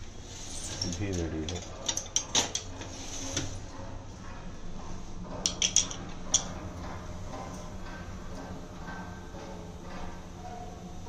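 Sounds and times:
steady low hum: 0.0s - 11.0s
kitchen utensils clinking: 5.4s - 6.5s.

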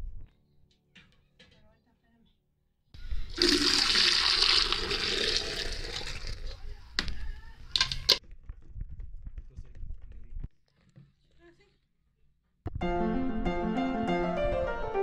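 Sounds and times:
milk pouring through strainer: 3.0s - 6.7s.

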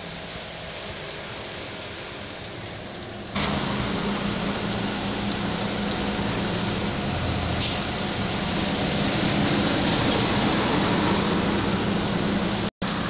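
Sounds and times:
bus engine humming: 0.0s - 13.0s.

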